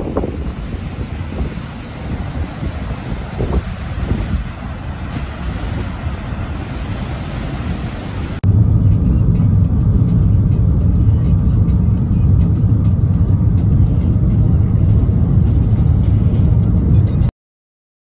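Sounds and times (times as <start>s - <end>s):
waterfall rushing: 0.0s - 8.4s
road noise inside a car: 0.0s - 17.3s.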